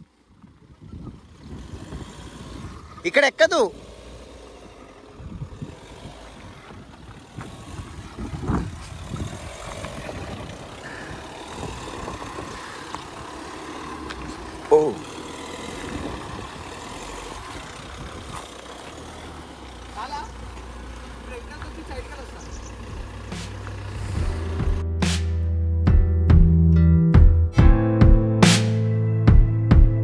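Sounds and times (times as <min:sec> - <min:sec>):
engine running at low revs: 0:00.0 - 0:30.0.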